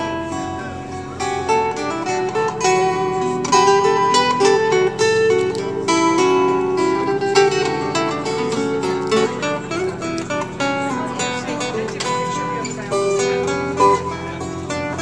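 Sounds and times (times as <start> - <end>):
acoustic guitar plucked notes: 0.0 - 15.0.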